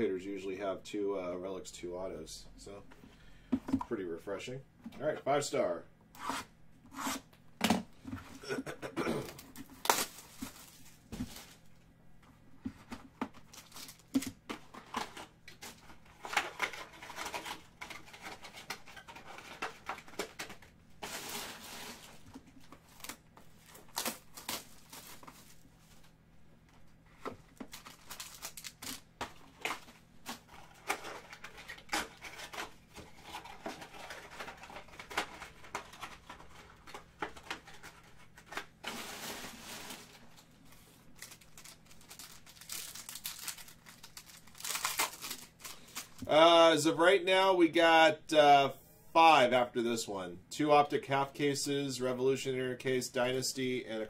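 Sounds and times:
foil packaging crinkling: 9.3s - 11.8s, 13.4s - 26.2s, 27.6s - 46.4s
packaging tearing: 9.4s - 11.5s, 22.9s - 25.6s, 27.7s - 36.6s, 41.1s - 46.3s.

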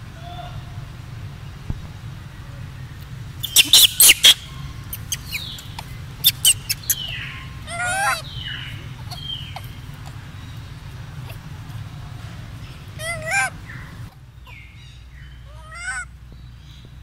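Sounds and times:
low steady hum: 0.0s - 17.0s
high-pitched animal calls: 3.4s - 10.3s, 13.0s - 14.6s.

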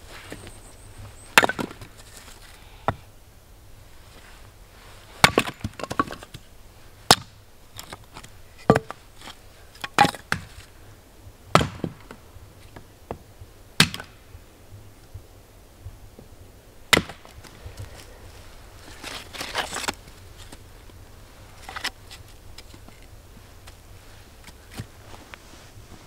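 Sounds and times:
hatchet chopping wood: 5.2s - 6.2s, 7.1s - 7.3s, 8.7s - 9.0s, 11.6s - 12.0s, 13.8s - 14.1s, 16.9s - 17.3s.

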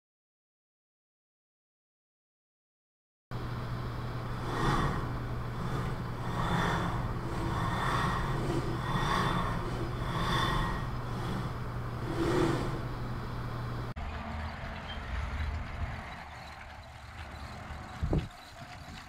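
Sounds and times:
steady low hum: 3.3s - 18.5s
robot arm motors whirring: 4.2s - 13.9s
wheeled robot rolling on concrete: 4.2s - 19.0s.

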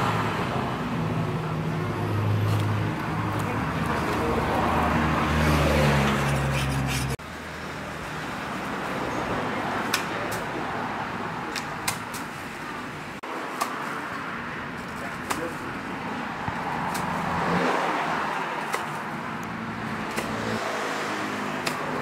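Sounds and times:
traffic hum: 0.0s - 22.0s.

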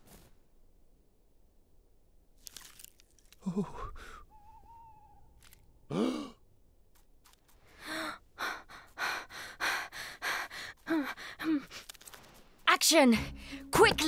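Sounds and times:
quick breathy pants: 7.8s - 11.9s.

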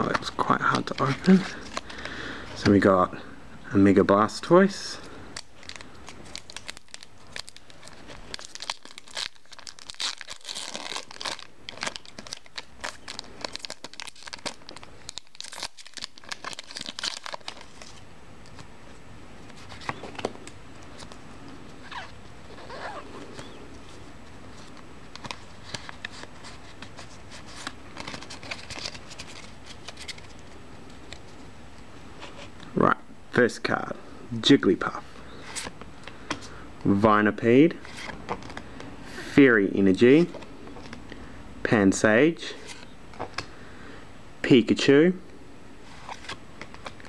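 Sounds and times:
plastic packaging crinkling and tearing: 0.0s - 2.1s, 5.4s - 18.6s, 21.8s - 31.3s, 46.0s - 47.0s.

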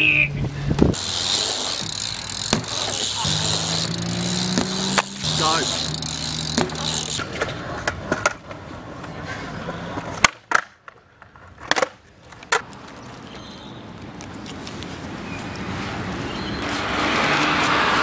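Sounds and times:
bmx tyres rolling on concrete: 0.4s - 18.0s
skateboard clacks on concrete: 6.6s - 13.6s.

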